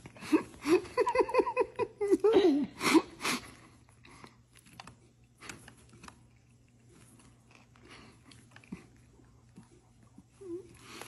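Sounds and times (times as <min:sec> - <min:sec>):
person chewing and biting: 0:03.9 - 0:10.4.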